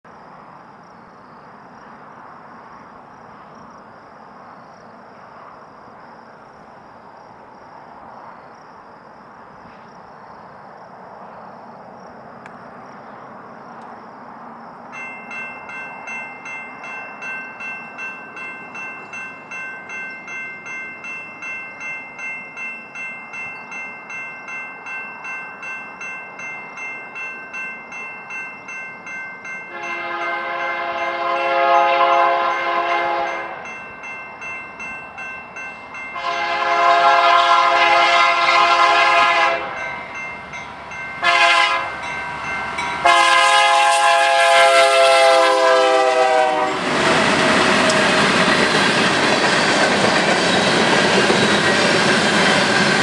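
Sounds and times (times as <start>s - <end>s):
crossing warning bell ringing: 14.8s - 46.7s, 47.7s - 53.0s.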